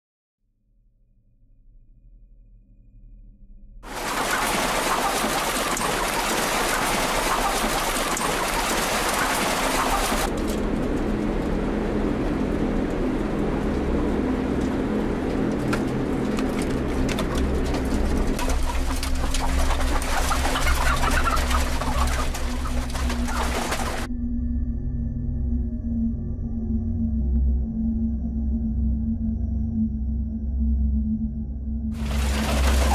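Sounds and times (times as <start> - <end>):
hens calling: 4.0 - 10.3, 16.6 - 24.1, 32.0 - 32.9.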